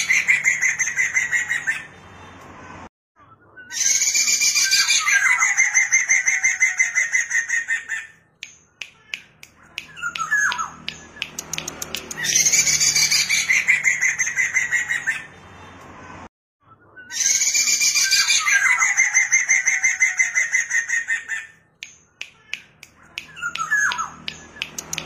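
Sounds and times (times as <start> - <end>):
sharp bird clicks: 8.4 - 12.8, 21.8 - 25.0.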